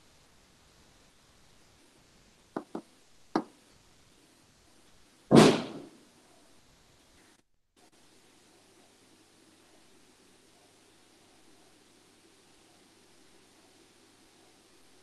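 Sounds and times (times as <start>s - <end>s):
short knocks: 2.6s - 3.5s
loud thump: 5.3s - 6.0s.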